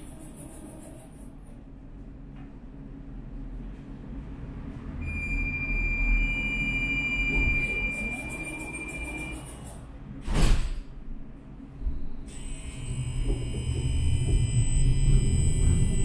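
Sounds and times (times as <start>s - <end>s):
tram low rumble: 0.0s - 16.0s
high electrical whine: 5.0s - 9.8s, 12.2s - 16.0s.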